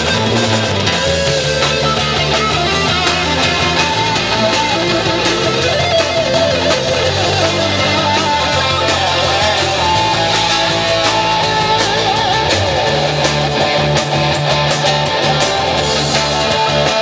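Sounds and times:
drum kit: 0.0s - 17.0s
electric guitars: 0.0s - 17.0s.

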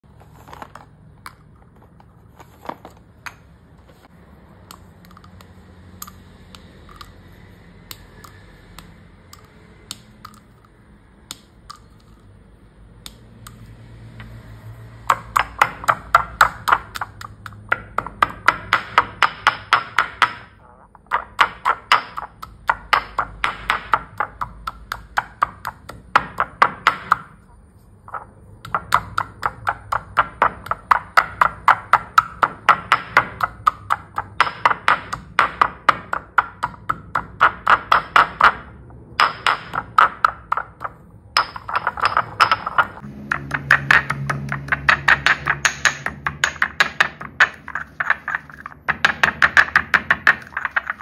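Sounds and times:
chalk sticks clicking: 4.6s - 14.4s, 15.1s - 27.4s, 28.1s - 51.0s
stone pestle pounding chalk: 15.0s - 51.0s.

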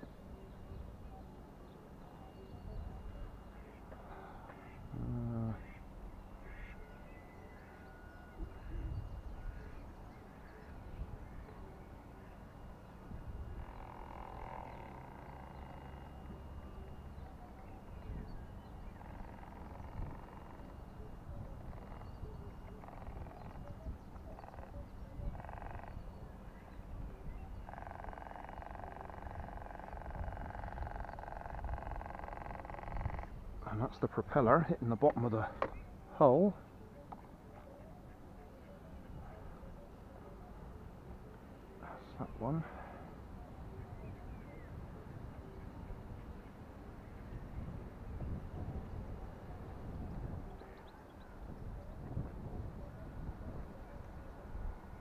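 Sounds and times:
ducks quacking: 3.5s - 6.9s
wind rumble on microphone: 8.3s - 36.1s, 43.0s - 55.0s.

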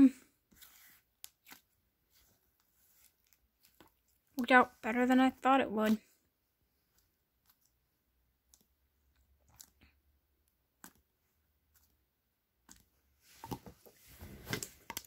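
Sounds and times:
slime clicking and squishing: 1.1s - 4.5s, 6.8s - 13.6s.

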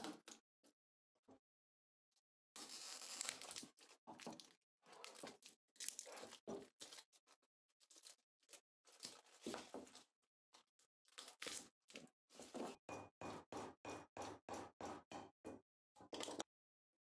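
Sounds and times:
plastic wrapping crinkling and tearing: 2.6s - 7.1s, 11.1s - 11.7s.

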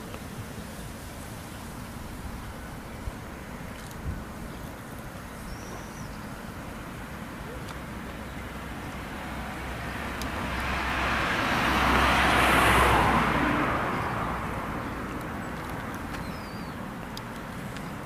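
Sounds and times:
vehicle passing by: 8.4s - 18.0s.

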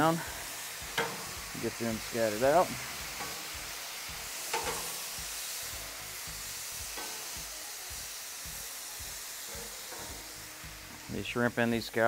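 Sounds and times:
seafood sizzling on a griddle: 0.0s - 12.0s
metal spatula scraping griddle: 0.9s - 1.4s, 2.3s - 3.7s, 4.4s - 5.1s, 9.4s - 10.8s.

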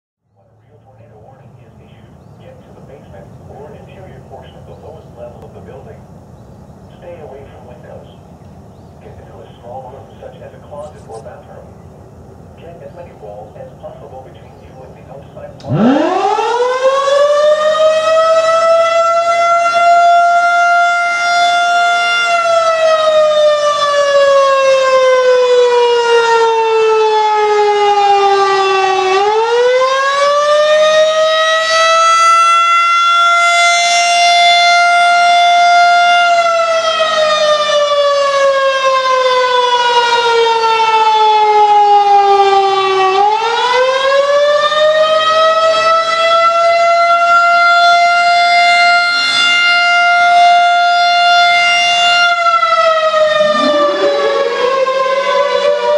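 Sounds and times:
warning siren rising and falling: 15.6s - 55.9s.

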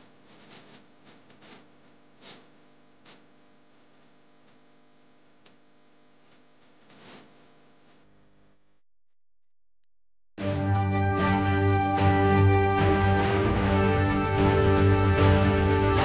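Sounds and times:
faint steady hum: 0.0s - 8.8s.

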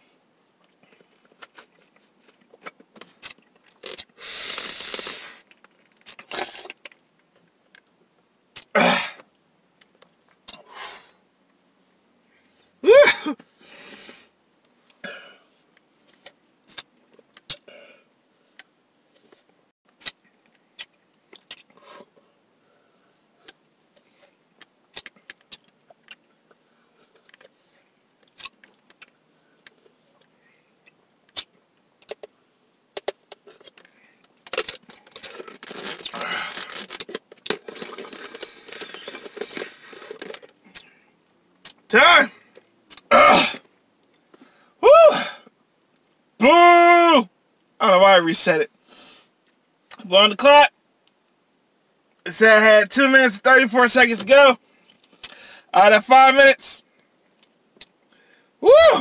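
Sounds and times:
icy slush rattling in cup: 36.7s - 40.5s.

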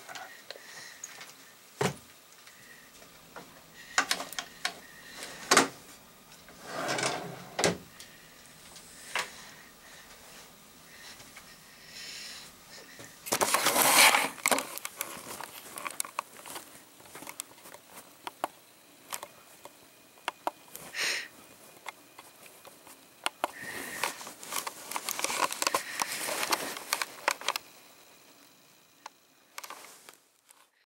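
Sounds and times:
cloth rubbing on microphone: 13.6s - 14.4s.

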